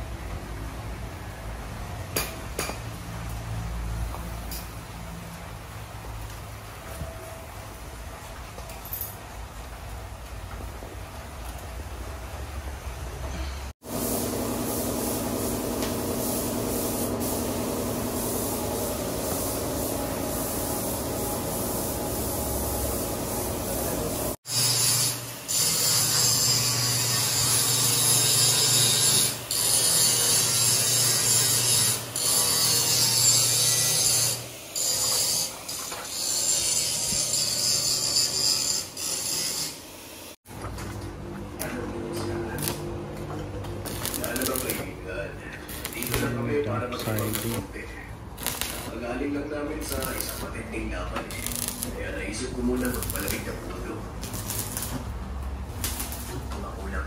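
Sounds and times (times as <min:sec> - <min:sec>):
angle grinder grinding steel: 0:24.5 - 0:39.9.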